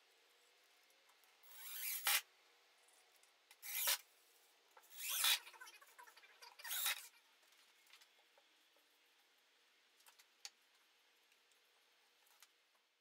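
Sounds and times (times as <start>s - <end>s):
cordless drill boring into wood: 1.5s - 2.2s, 3.6s - 4.0s, 4.9s - 5.4s, 6.6s - 7.1s.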